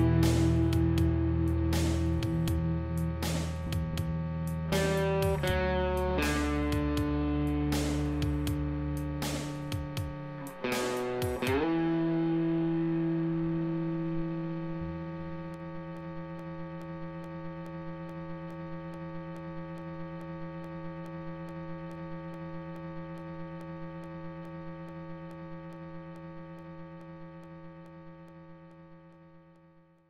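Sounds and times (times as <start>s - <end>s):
held electric guitar note: 0.0s - 9.2s, 9.8s - 15.9s.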